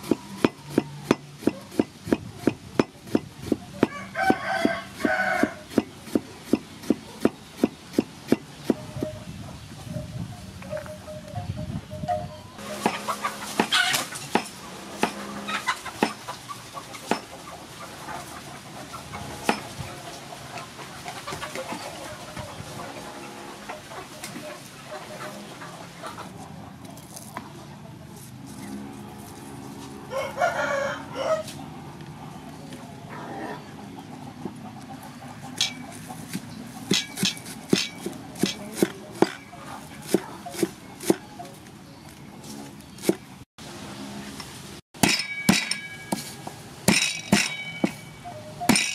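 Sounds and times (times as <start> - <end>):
cleaver chopping on wooden block: 0.0 - 8.8, 12.8 - 15.2, 16.0 - 16.2, 35.6 - 39.4, 40.0 - 41.2, 45.0 - 46.3, 46.9 - 48.0
chickens clucking: 0.0 - 43.5.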